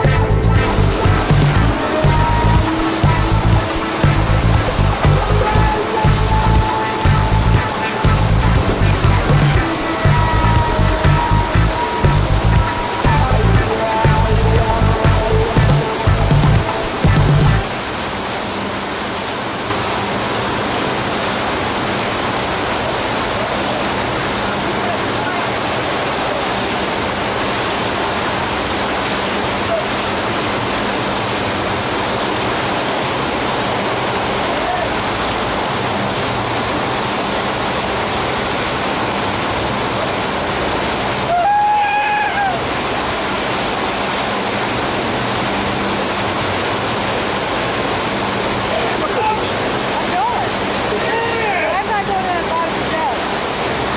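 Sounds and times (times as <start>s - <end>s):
breaking sea waves: 0.0s - 53.9s
seawater rushing along ship: 0.0s - 53.9s
person crying out: 1.6s - 16.3s, 41.3s - 42.7s.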